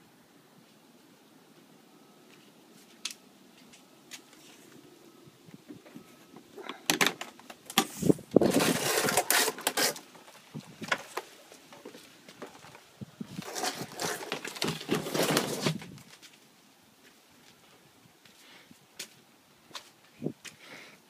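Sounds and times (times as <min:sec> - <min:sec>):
scraping and rubbing on microphone: 0:07.8 - 0:10.9, 0:12.5 - 0:16.2.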